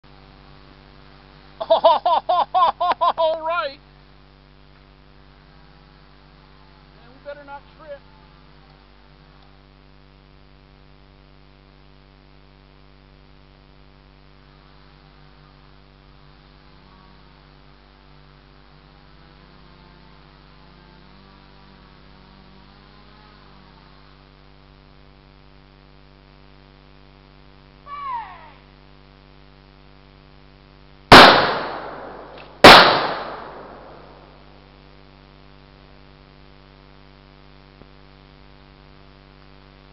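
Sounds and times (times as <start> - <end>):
electrical hum: 0.0 - 39.9.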